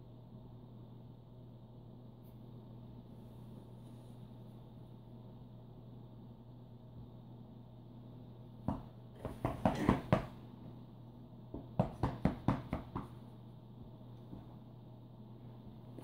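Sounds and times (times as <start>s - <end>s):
stick tapping bed covers: 8.6s - 10.4s, 11.5s - 13.3s.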